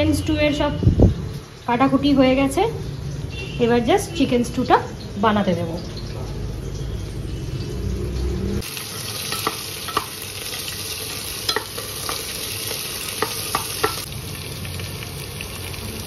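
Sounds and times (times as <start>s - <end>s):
vegetables sizzling in hot oil: 4.1s - 16.0s
metal spoon clinking against pot: 9.0s - 14.1s.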